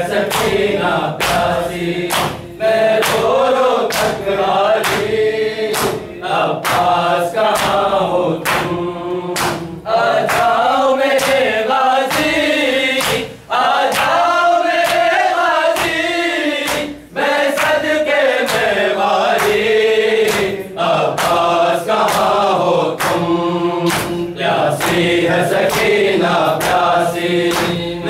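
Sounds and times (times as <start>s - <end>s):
men chanting in unison: 0.0s - 28.0s
hands beating chests: 0.2s - 4.2s, 4.8s - 8.8s, 9.4s - 14.2s.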